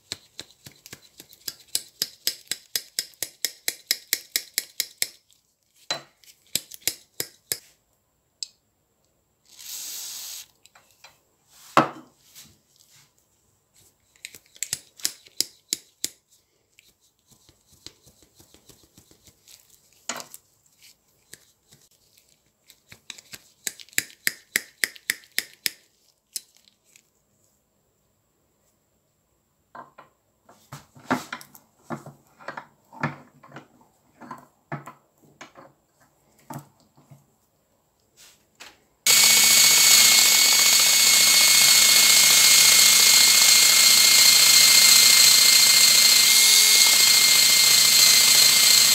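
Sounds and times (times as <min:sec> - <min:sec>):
wire wheel brush whining: 0:39.1 - 0:48.9.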